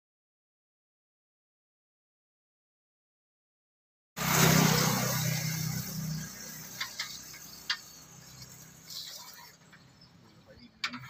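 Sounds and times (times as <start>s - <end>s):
vehicle passing by: 4.2s - 9.6s.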